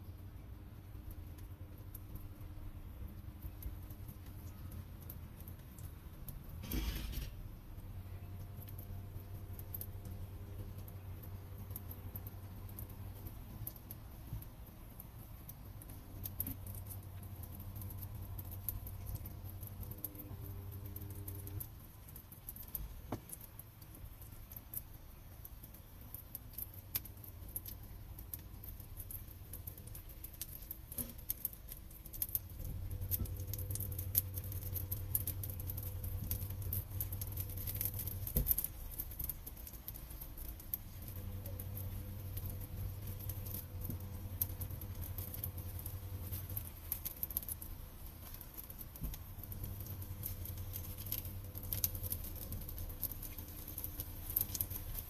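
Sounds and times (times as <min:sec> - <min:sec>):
pancakes sizzling in oil: 0:00.0 - 0:55.0
low hum: 0:32.1 - 0:55.0.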